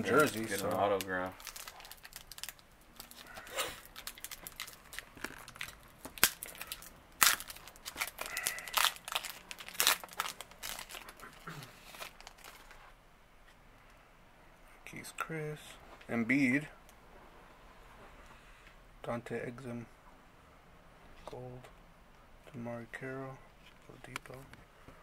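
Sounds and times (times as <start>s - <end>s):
foil wrapper crinkling: 0.0s - 12.9s.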